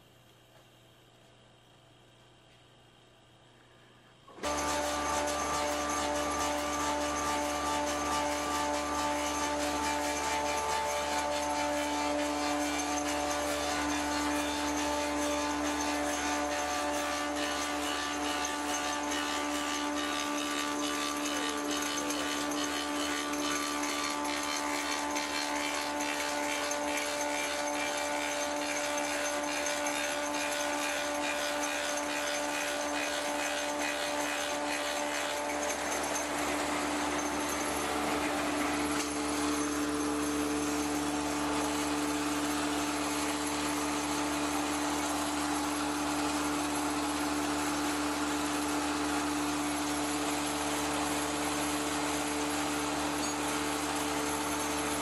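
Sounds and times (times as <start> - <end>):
lathe running with mechanical hum: 2.8 - 55.0.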